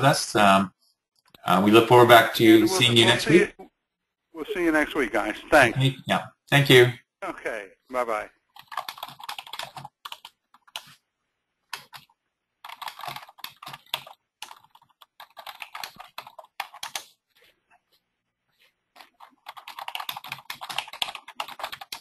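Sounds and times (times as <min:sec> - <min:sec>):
typing on computer keyboard: 0:08.5 - 0:10.9, 0:11.7 - 0:17.1, 0:19.0 - 0:22.0.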